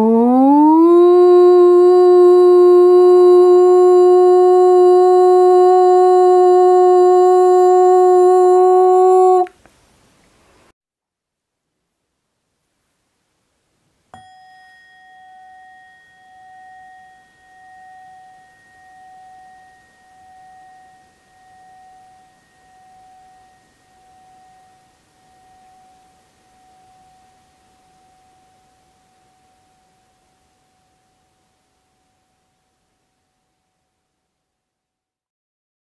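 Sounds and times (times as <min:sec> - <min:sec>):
ringing metal chime: 0:14.1 - 0:33.9.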